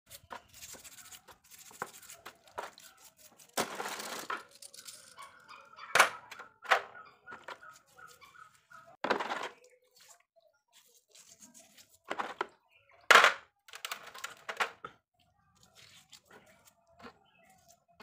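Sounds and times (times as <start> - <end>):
scratchy brushing: 0.1 - 3.6, 9.9 - 12.2.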